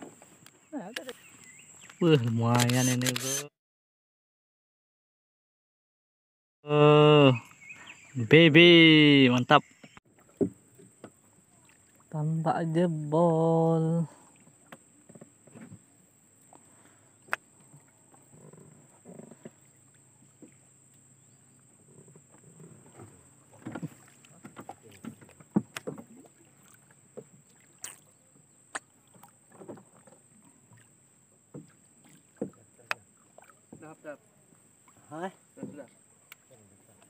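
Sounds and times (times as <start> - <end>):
knocks and clicks on boat: 9.3 - 11.2, 14.4 - 15.9, 21.8 - 26.4, 27.1 - 30.8, 31.4 - 34.0, 35.5 - 37.0.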